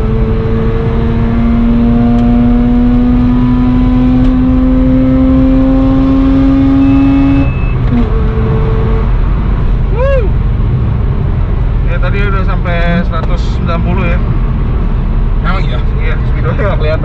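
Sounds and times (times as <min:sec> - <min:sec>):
rotary engine accelerating: 0:00.0 - 0:09.6
road noise: 0:00.0 - 0:17.0.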